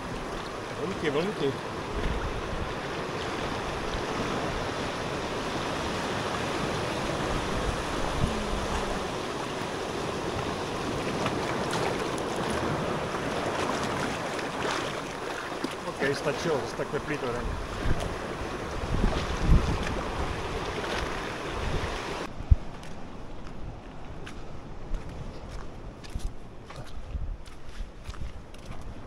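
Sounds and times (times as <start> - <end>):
sea waves washing over rocks: 0.0 - 22.3
person swimming splashing: 6.1 - 16.1.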